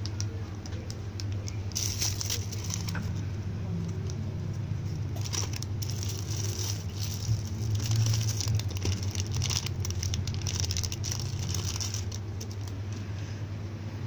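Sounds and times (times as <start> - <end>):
plastic packaging crinkling: 0.0 - 3.2, 5.0 - 12.8
steady low hum: 0.0 - 14.0.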